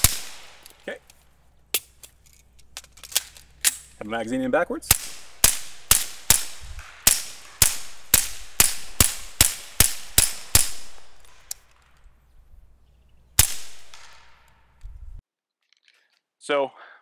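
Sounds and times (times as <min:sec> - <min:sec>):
suppressed pistol shots: 0:00.0 - 0:00.8, 0:04.9 - 0:11.9, 0:13.4 - 0:14.8.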